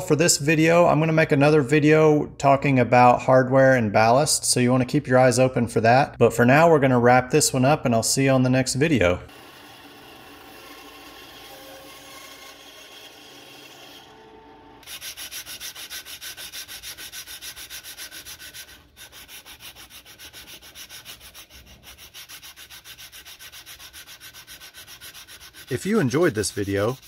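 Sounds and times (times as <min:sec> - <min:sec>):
bandsaw running: 0:09.3 - 0:27.0
sandpaper rubbing on resin: 0:14.8 - 0:27.0.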